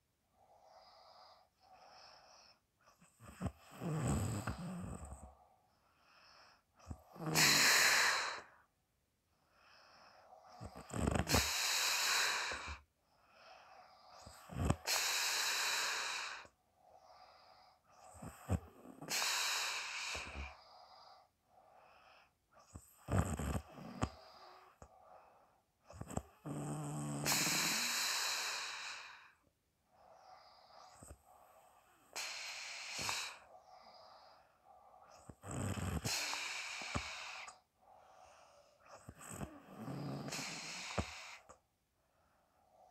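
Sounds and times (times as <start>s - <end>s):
person snoring heavily: 3.2s - 5.3s, 6.9s - 8.6s, 10.5s - 12.8s, 14.0s - 16.5s, 17.1s - 20.7s, 22.9s - 24.8s, 25.9s - 29.4s, 30.2s - 34.4s, 35.0s - 37.6s, 38.9s - 41.6s.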